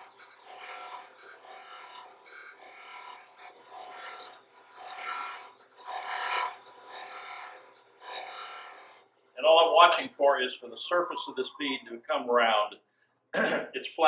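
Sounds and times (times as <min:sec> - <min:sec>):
lathe tool scraping wood: 0:00.0 - 0:09.1.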